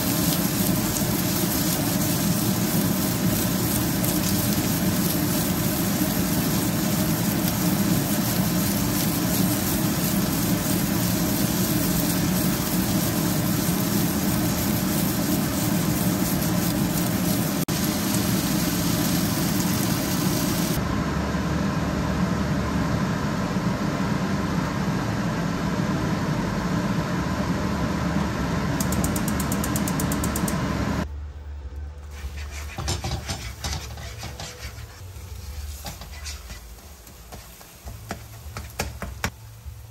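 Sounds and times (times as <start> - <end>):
sausages sizzling in a frying pan: 0.0 - 20.8
spatula scraping a pan: 32.1 - 37.8.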